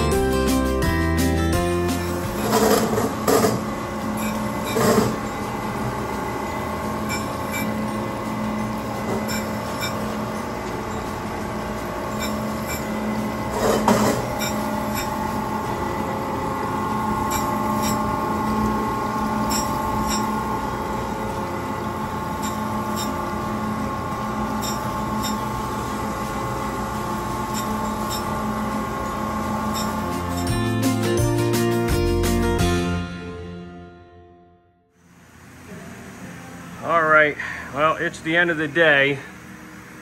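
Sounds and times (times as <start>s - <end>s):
surface grinder grinding steel: 1.6s - 31.0s.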